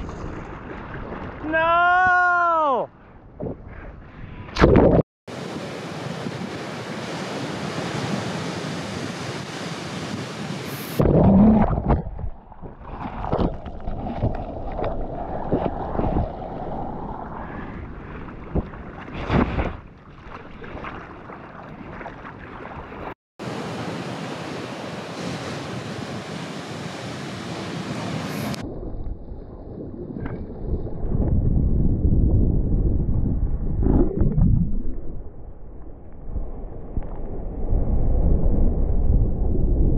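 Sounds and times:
ocean surf and rushing water: 4.6 - 28.9
loud splashes and thuds: 11.0 - 16.4, 18.0 - 23.2.

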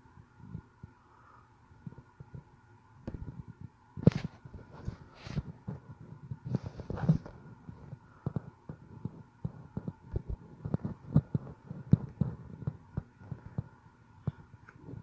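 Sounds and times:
fingers tapping smartphone touchscreen: 8.2 - 15.0.

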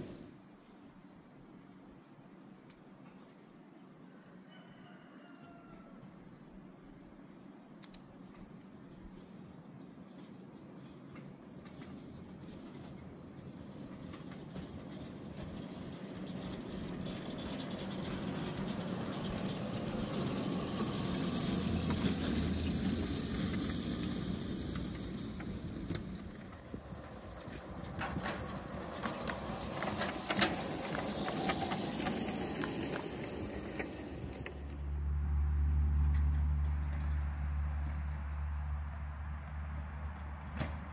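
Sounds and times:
miniature train rumbling on track: 0.0 - 0.4, 7.8 - 35.1
clicks and snaps: 7.6 - 8.7
low motor hum: 15.3 - 40.9.

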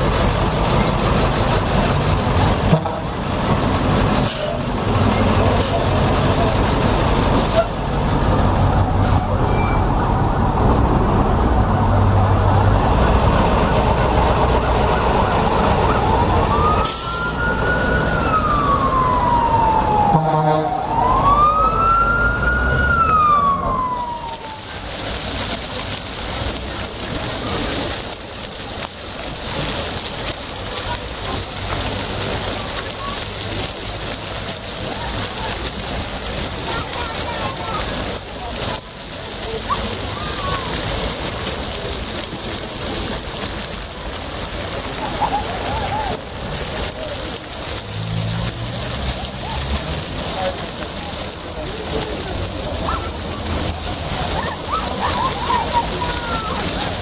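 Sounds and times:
fountain water splashing: 0.0 - 57.0
street traffic: 0.0 - 57.0
emergency siren wailing: 13.6 - 25.1.

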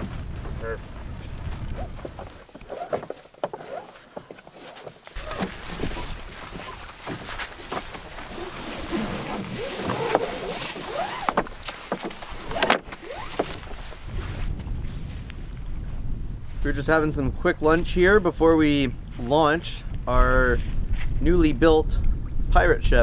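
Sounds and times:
sail cloth rustling: 0.0 - 15.4
rope rasping and squeaking: 1.7 - 14.0.

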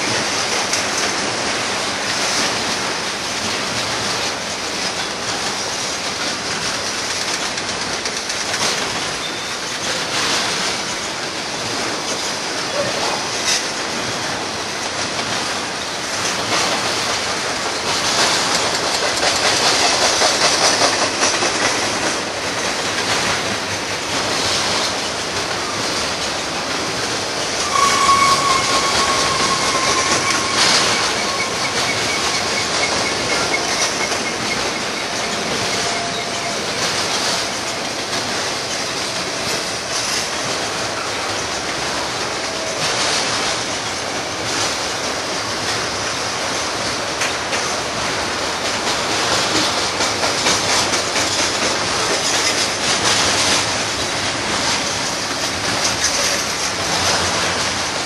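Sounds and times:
train wheels rumbling on rail: 0.0 - 58.0
wheel squeal: 9.1 - 10.0, 24.4 - 37.6.

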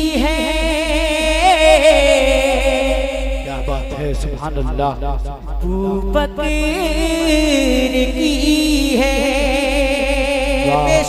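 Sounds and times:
man singing into a microphone: 5.5 - 11.0.

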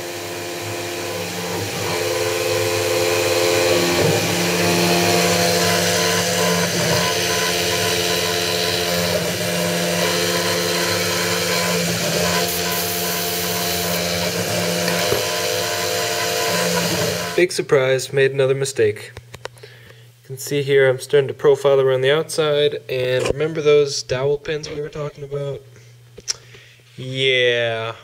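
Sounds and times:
end mill cutting metal: 0.0 - 17.4
milling machine whine: 0.0 - 17.5.

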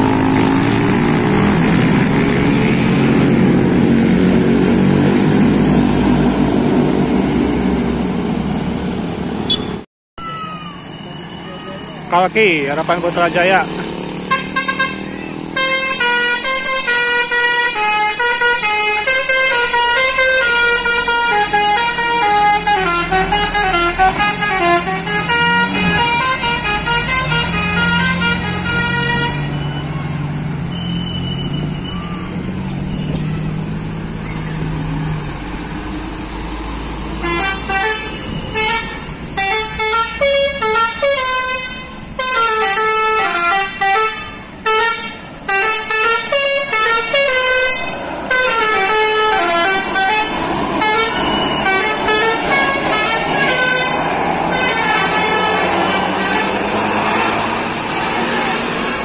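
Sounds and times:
bus engine running: 0.0 - 9.8, 10.5 - 59.0
bus horns playing a melody: 14.2 - 29.9, 37.1 - 59.0.

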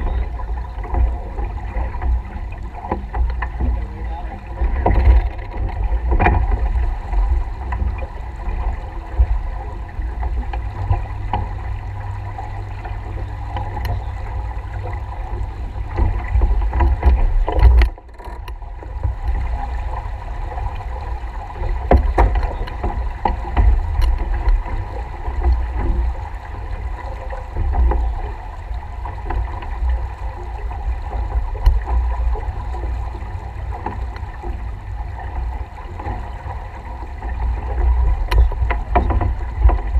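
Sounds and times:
water washing past hull: 0.0 - 39.9
wind buffeting microphone: 0.0 - 39.9
faint clicks: 12.7 - 14.2, 21.6 - 26.0.

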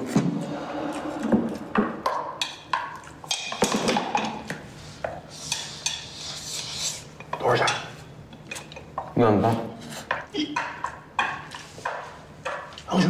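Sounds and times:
chopsticks tapping bowls: 0.9 - 6.4, 7.1 - 9.2, 10.0 - 13.0
dishes set down: 1.3 - 5.2.

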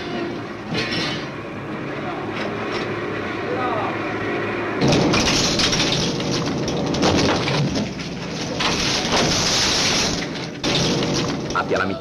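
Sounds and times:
rock clattering and crashing: 4.8 - 11.6.

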